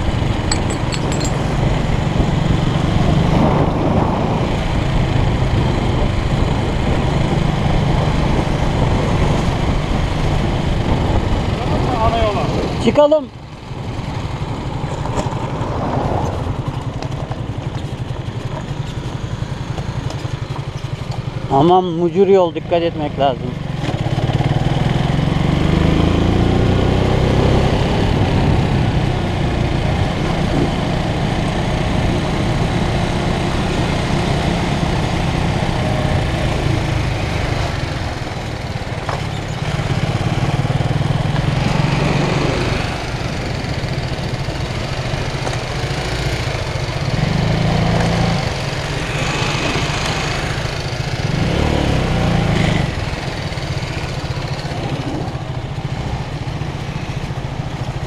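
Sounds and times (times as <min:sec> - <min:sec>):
wind noise: 0:00.0 - 0:13.0, 0:26.0 - 0:32.6
motorcycle engine accelerating: 0:00.0 - 0:21.8, 0:22.9 - 0:58.0.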